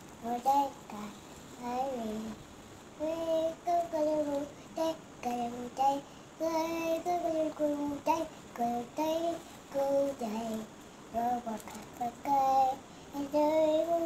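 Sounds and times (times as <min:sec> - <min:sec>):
child singing wordless tune: 0:00.2 - 0:02.4, 0:03.0 - 0:14.0.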